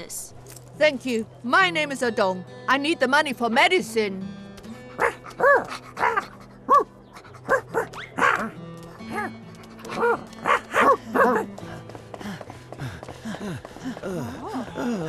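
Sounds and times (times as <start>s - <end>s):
background music with held notes: 0.8s - 15.0s
cartoon dog barking: 5.0s - 6.9s, 7.5s - 8.5s.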